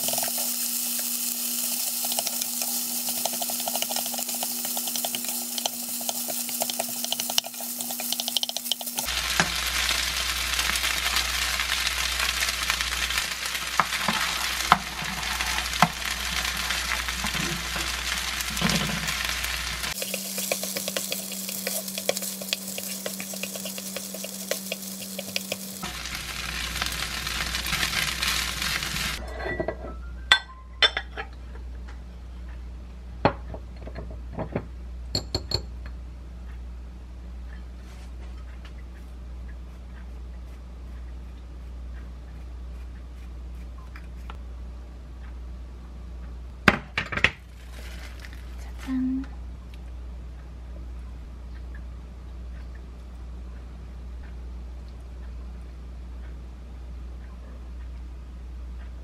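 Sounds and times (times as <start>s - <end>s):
rice sizzling in frying pan: 0.0s - 29.2s, 47.5s - 48.7s
spatula scraping pan: 2.0s - 9.9s, 13.5s - 25.8s.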